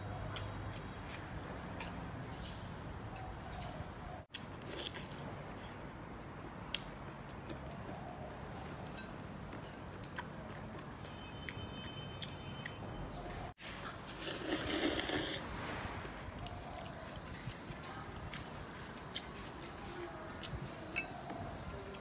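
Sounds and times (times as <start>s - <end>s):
chewing with small clicks: 0.1s - 2.0s, 6.4s - 8.2s, 8.8s - 13.5s, 16.4s - 22.0s
person slurping noodles: 14.1s - 15.5s.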